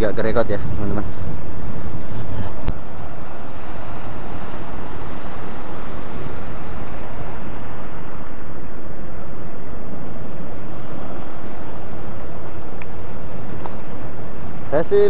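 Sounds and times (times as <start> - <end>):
wind buffeting microphone: 0.0 - 15.0
surf breaking against rocks: 2.7 - 14.8.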